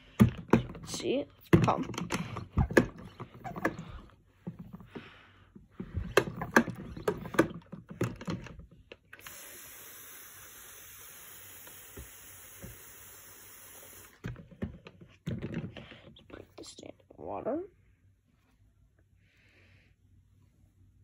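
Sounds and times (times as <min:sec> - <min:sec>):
hand pump strokes: 0:02.0 - 0:04.0, 0:06.0 - 0:07.6
water mist spraying hiss: 0:09.3 - 0:14.2.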